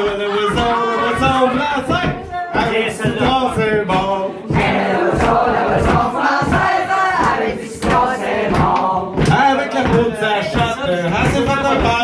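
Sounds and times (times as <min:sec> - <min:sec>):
man's voice through microphone: 0:00.0 - 0:04.5, 0:09.3 - 0:12.0
group singing and shouting: 0:00.0 - 0:12.0.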